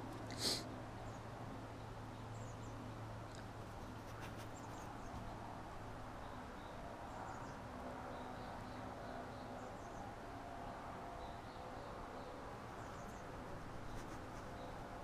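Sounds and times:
small birds chirping: 0.0s - 5.5s, 11.2s - 15.0s.

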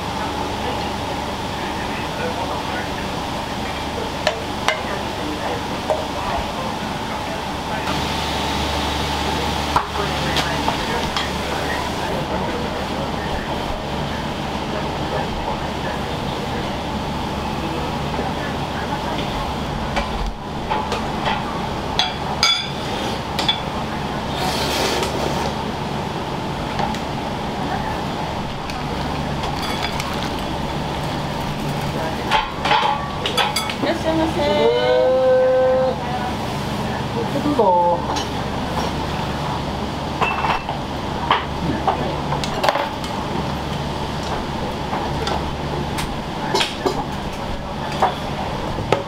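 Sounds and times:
rushing kitchen background: 0.0s - 49.0s
steady low hum: 0.0s - 49.0s
utensils and dishes clinking: 20.7s - 23.7s, 28.7s - 33.9s, 40.2s - 43.1s
kitchenware clinking: 29.4s - 30.5s, 32.2s - 33.8s.

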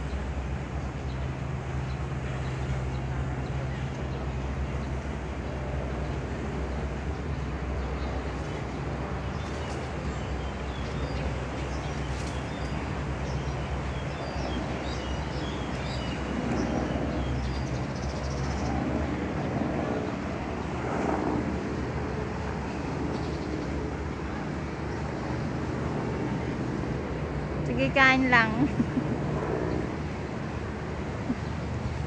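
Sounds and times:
small birds chirping: 7.1s - 19.5s.

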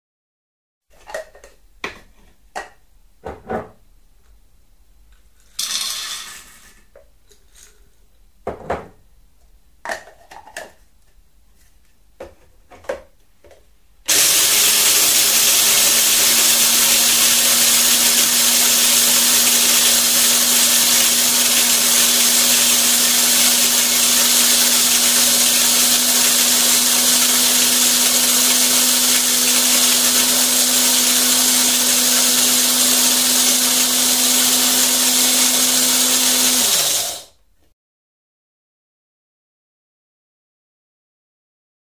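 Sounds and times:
coffee grinder grinding: 5.4s - 6.8s, 14.1s - 37.4s.

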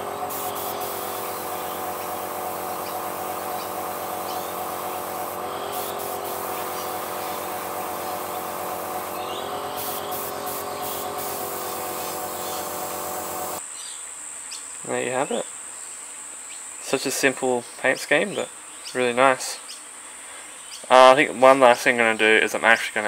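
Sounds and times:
airbrush hissing spray bursts: 0.0s - 13.6s
small compressor humming: 0.0s - 13.6s.

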